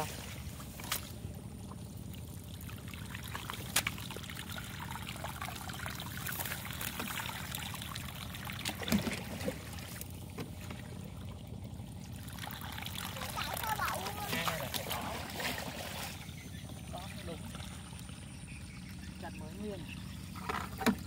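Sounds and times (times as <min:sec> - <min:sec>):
water pouring: 0:02.0 - 0:16.3.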